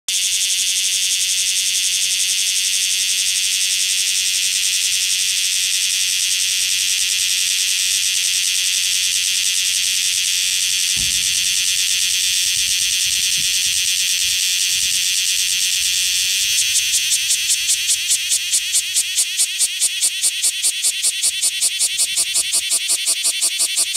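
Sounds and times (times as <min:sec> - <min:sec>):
cicada buzzing: 0:00.1 - 0:23.9
low thump: 0:10.5 - 0:17.6.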